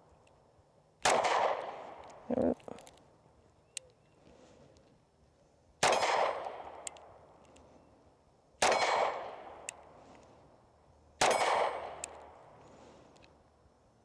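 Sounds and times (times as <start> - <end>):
pistol shots with echo: 1.0 - 2.1, 5.8 - 6.9, 8.6 - 9.7, 11.2 - 12.3.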